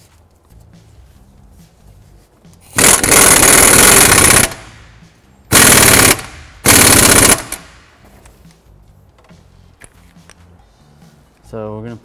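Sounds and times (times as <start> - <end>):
pneumatic impact wrench hammering: 2.7 - 4.9, 5.5 - 7.8.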